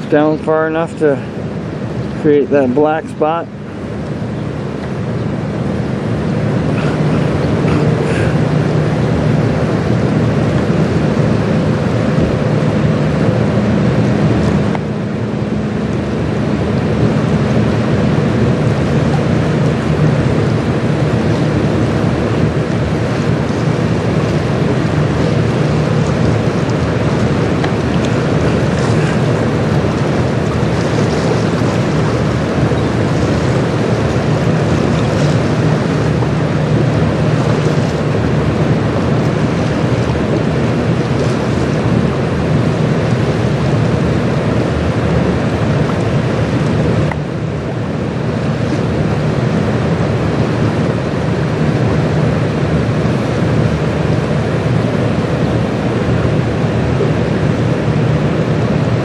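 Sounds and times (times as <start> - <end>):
ship engine drone: 0.0 - 59.0
water rushing along hull: 0.0 - 59.0
wind on microphone: 0.0 - 59.0.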